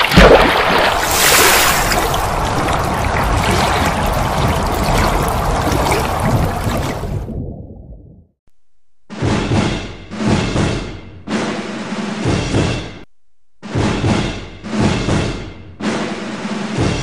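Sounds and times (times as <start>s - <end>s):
water splashing: 0.0s - 8.1s.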